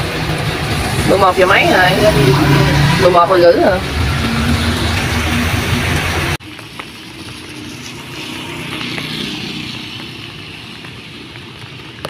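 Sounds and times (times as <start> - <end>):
motorbike passing: 0.0 - 12.0
tyres hissing through water: 0.0 - 12.0
low hum: 0.4 - 6.4.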